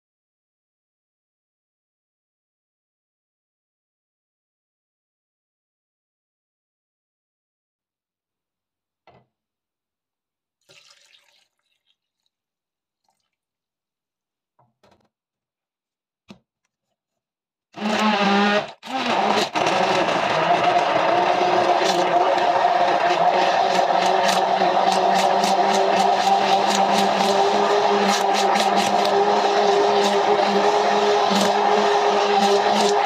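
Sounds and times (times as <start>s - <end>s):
electric hand blender running: 17.8s - 33.0s.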